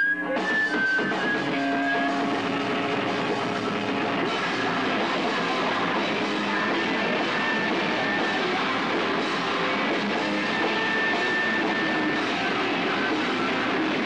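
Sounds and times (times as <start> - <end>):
rock band playing live: 0.0 - 14.0.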